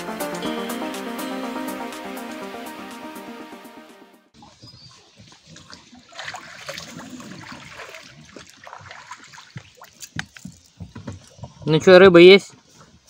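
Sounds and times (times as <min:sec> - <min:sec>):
water splashing and trickling: 0:04.3 - 0:11.7.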